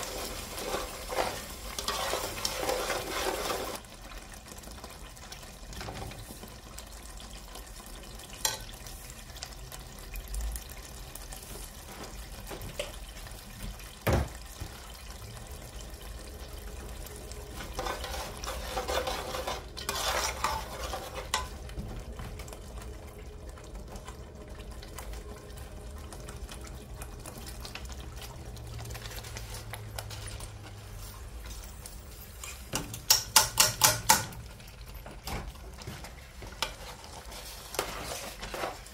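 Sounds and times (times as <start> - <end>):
metal ladle scraping a pot: 0.0 - 3.8, 17.6 - 21.6
sieve tapping on a pot: 32.7 - 34.4.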